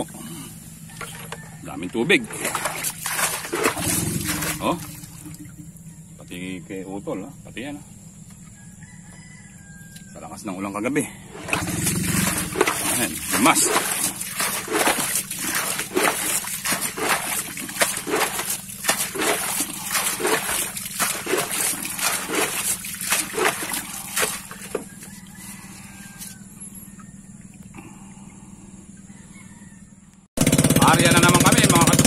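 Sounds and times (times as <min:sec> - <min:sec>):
water splashing and sloshing: 0:00.0 - 0:05.8, 0:11.3 - 0:27.8.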